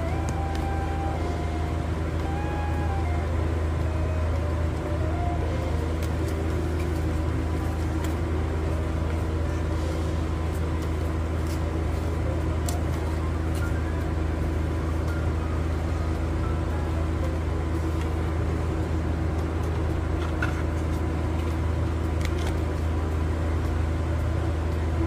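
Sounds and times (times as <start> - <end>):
low hum: 0.0 - 25.0
cards being shuffled: 10.5 - 13.7.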